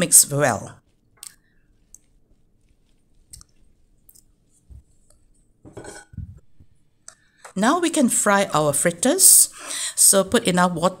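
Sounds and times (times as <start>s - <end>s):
spatula stirring sticky dough: 0.3s - 5.9s.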